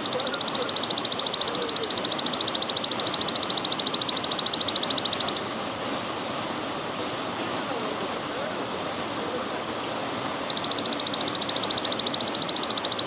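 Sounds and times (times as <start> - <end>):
grasshopper buzzing trill: 0.0 - 5.4, 10.4 - 13.0.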